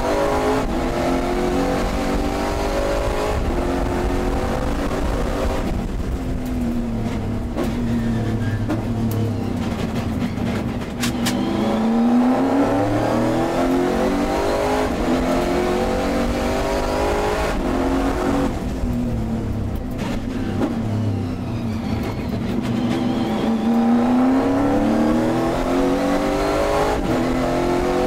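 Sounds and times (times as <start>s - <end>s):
race car engine revving: 0.0s - 10.1s, 11.0s - 28.0s.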